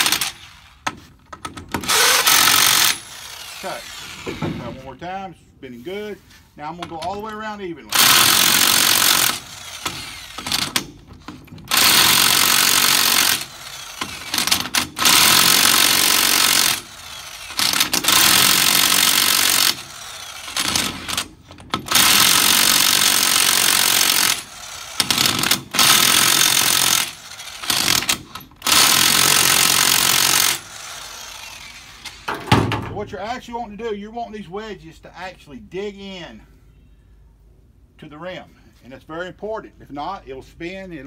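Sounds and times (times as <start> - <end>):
electric impact wrench hammering: 0.0 - 4.8, 7.9 - 33.0.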